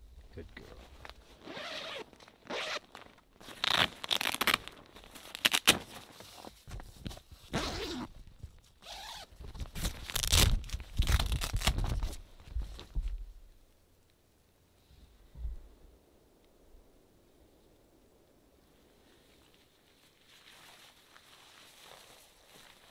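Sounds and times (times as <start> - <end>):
tent fabric rustling: 0.6 - 13.2, 19.0 - 22.9
tent zipper rasping: 1.4 - 6.2, 7.5 - 8.1, 8.8 - 10.5.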